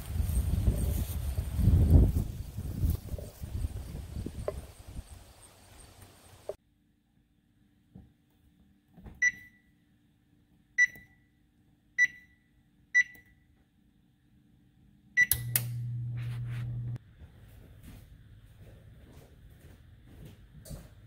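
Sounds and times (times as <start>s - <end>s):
oven control panel beeps: 9.2s - 9.7s, 10.8s - 11.3s, 12.0s - 13.5s, 15.2s - 16.1s
oven humming: 15.2s - 17.0s.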